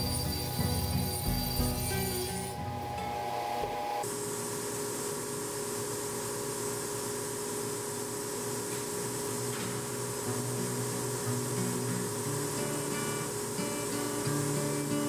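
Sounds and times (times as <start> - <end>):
music: 0.0 - 4.0, 10.3 - 15.0.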